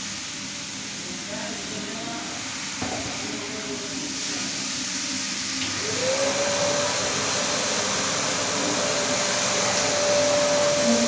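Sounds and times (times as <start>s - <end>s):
carpet cleaning machines rushing: 3.3s - 11.0s
motor whine: 8.3s - 11.0s.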